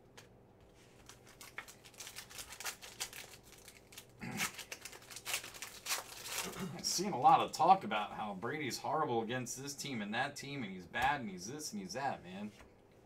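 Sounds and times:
foil wrapper crinkling: 0.9s - 7.4s.

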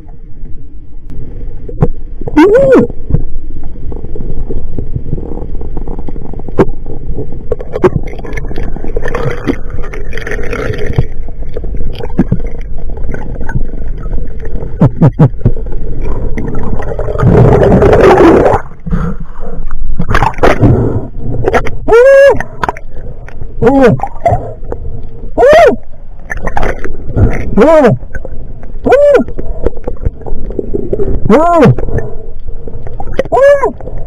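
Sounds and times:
underwater rush and gurgle: 0.0s - 34.0s
churning water rush: 25.3s - 32.2s, 32.9s - 34.0s.

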